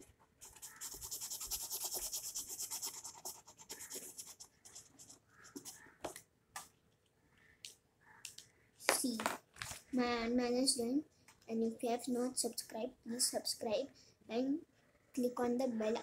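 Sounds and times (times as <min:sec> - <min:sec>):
colouring scratching on paper: 0:00.0 - 0:06.0.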